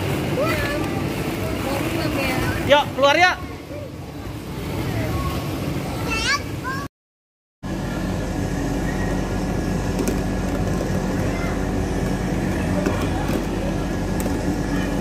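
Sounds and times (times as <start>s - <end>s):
vehicle rumbling: 7.6s - 15.0s.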